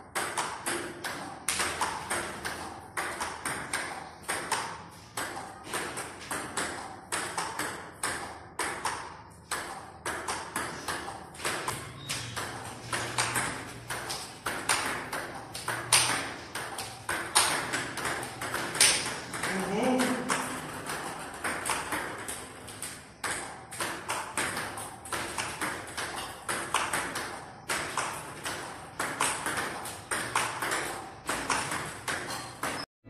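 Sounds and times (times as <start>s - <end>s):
balls bouncing on table: 0.0s - 32.9s
table tennis balls clicking off bats: 0.0s - 32.9s.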